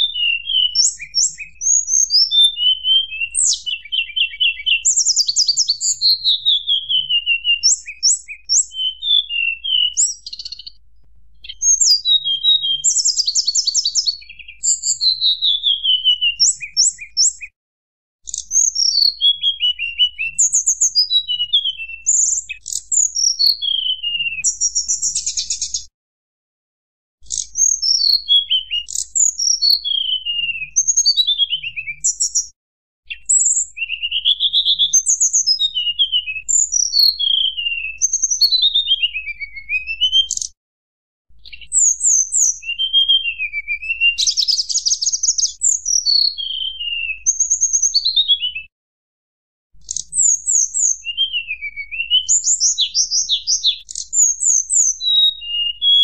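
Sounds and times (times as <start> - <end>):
bird whistling high notes: 49.9 - 56.0.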